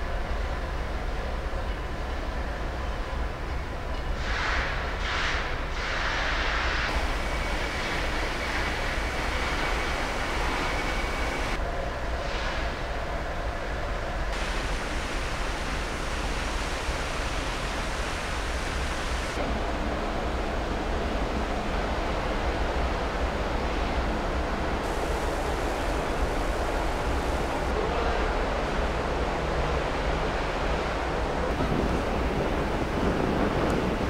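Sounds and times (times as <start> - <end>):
wind noise on microphone: 28.8 - 34.0.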